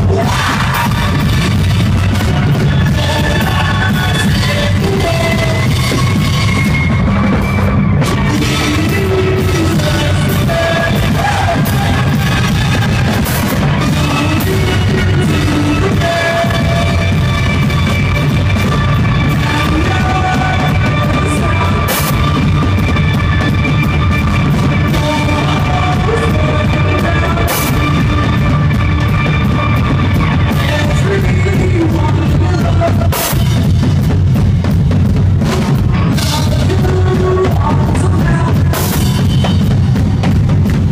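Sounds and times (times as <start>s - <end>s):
drum kit: 0.0s - 40.9s
electric guitar: 0.0s - 40.9s
live rock band playing: 0.0s - 40.9s.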